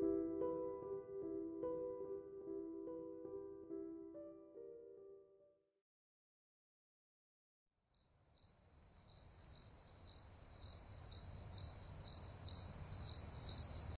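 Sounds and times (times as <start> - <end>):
crickets chirping: 7.9 - 14.0.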